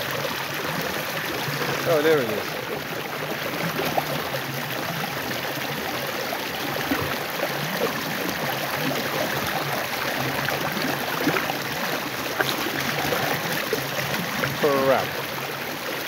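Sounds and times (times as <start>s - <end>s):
stream water rushing: 0.0s - 16.0s.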